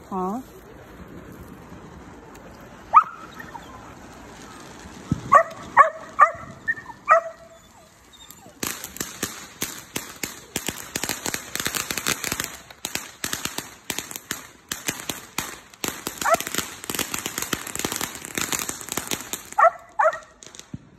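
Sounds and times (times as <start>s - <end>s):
firework crackling: 0.0s - 20.9s
puppy whining: 5.6s - 8.6s.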